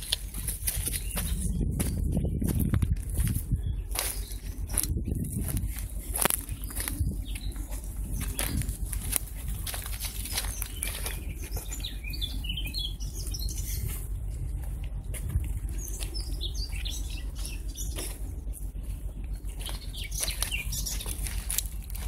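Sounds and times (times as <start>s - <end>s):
footsteps on dry twigs and leaves: 0.0s - 22.0s
small birds chirping: 0.0s - 22.0s
steady low rumble: 0.0s - 22.0s.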